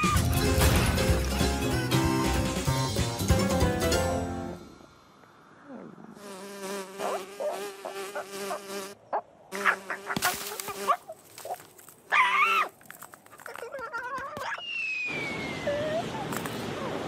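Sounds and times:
cartoon fly buzzing: 6.2 - 11.0.

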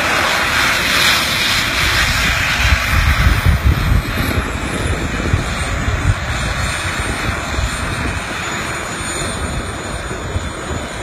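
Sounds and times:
jet turbines rushing and whining: 0.0 - 11.0.

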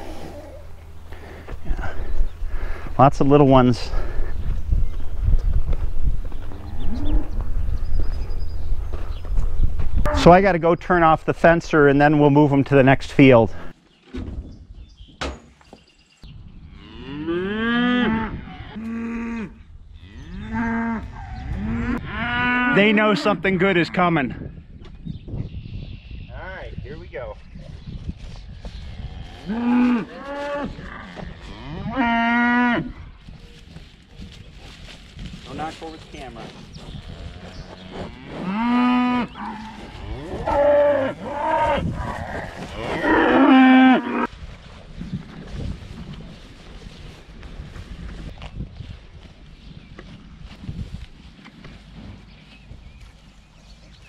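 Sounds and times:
cattle mooing: 37.0 - 44.3.

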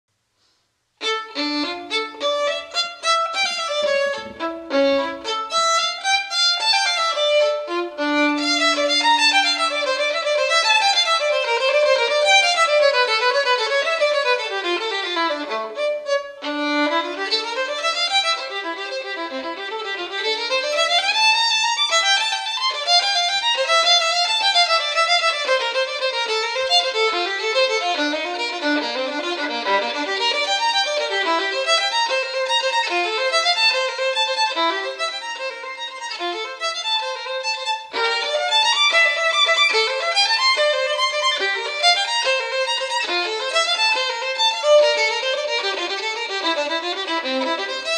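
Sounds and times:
violin music: 1.0 - 47.9.

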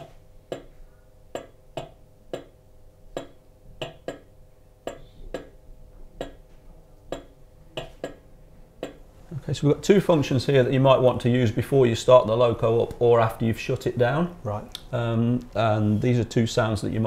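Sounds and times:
sharp irregular clicks from speaker: 1.3 - 2.5, 3.1 - 4.3, 4.9 - 5.5, 6.2 - 6.4, 7.1 - 8.2, 8.8 - 9.0, 14.7 - 15.6.

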